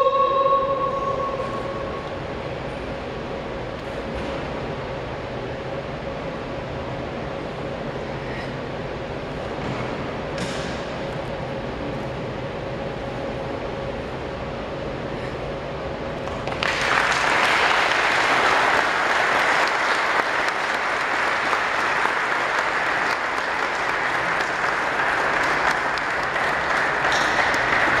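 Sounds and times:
faint hum: 0:00.0 - 0:28.0
audience applauding: 0:16.2 - 0:28.0.

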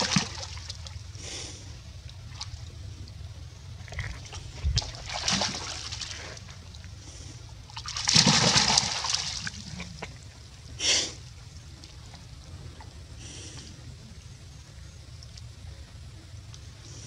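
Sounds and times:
monkeys splashing in stream: 0:00.0 - 0:01.2, 0:02.1 - 0:02.8, 0:03.6 - 0:10.3.

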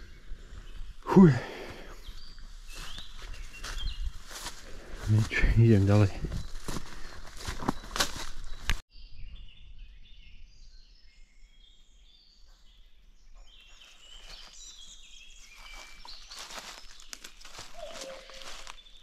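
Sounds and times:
birds singing: 0:00.0 - 0:19.0
footsteps through undergrowth: 0:01.7 - 0:08.8, 0:13.4 - 0:19.0.

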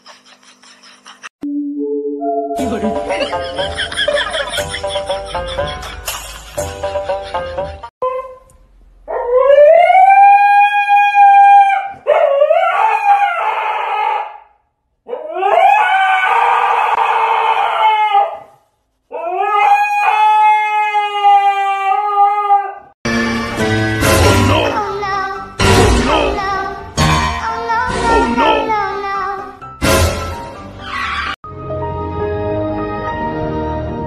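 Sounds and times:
music: 0:01.8 - 0:07.9, 0:23.1 - 0:34.0
husky howling: 0:09.1 - 0:14.5, 0:15.1 - 0:22.9.

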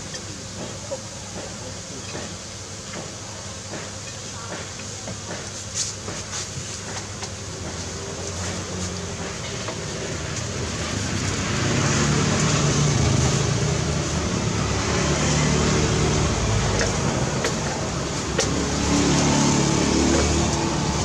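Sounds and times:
street traffic: 0:00.0 - 0:21.0
vehicle engine: 0:07.6 - 0:21.0.

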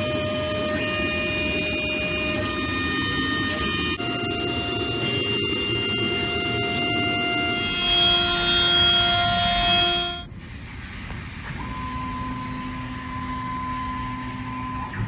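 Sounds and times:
router spindle whine: 0:00.0 - 0:10.3
lower steady whine: 0:00.0 - 0:15.0.

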